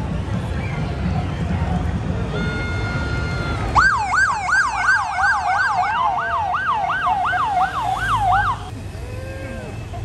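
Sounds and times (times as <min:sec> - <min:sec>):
police siren yelping: 0:03.8 - 0:08.7.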